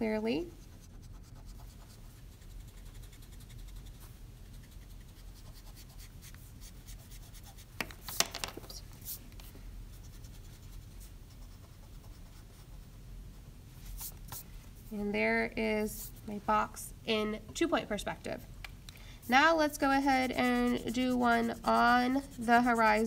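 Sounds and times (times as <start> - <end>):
eraser rubbing on paper: 0.5 - 8.2, 19.2 - 23.0.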